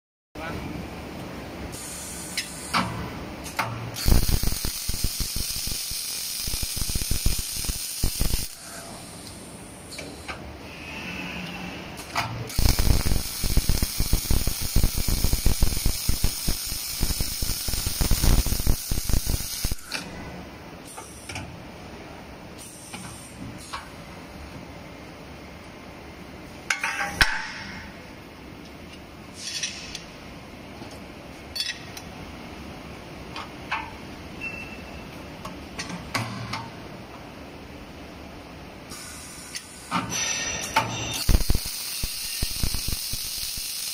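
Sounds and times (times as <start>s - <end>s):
steady machine hum: 0.4s - 21.0s
welding arc crackling hiss: 1.7s - 2.9s, 3.5s - 10.3s, 12.5s - 20.1s, 41.1s - 43.9s.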